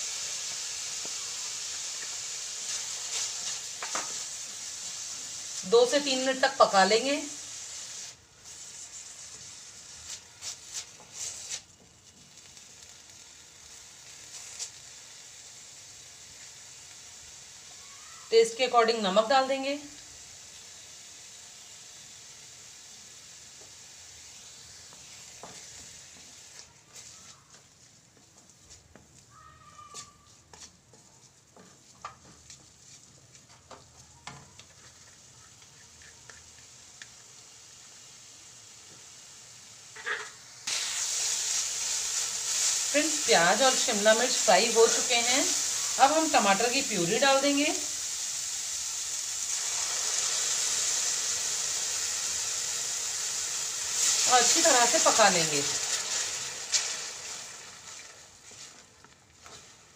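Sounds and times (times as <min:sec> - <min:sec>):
vegetables sizzling in oil: 0:00.0 - 0:30.7, 0:31.3 - 0:59.9
wooden spatula scraping and stirring: 0:30.3 - 0:36.7, 0:57.8 - 0:59.9
wooden spatula scraping metal pan: 0:59.4 - 0:59.8.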